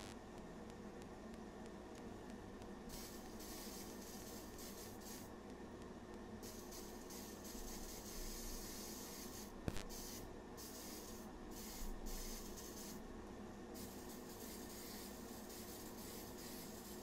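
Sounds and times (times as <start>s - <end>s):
aerosol spray hissing: 2.9s - 5.3s, 6.4s - 13.0s, 13.8s - 17.0s
fan humming: 6.4s - 17.0s.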